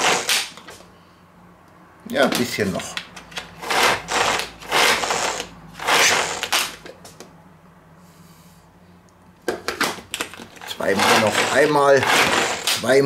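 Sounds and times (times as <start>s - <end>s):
manual food chopper blades spinning: 0.0s - 0.6s, 3.4s - 6.9s, 10.2s - 13.0s.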